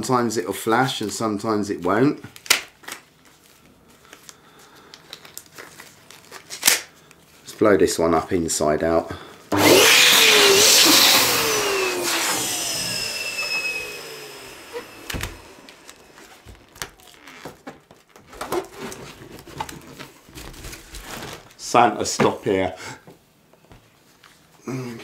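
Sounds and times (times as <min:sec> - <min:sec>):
electric balloon pump: 0:09.5 - 0:17.3.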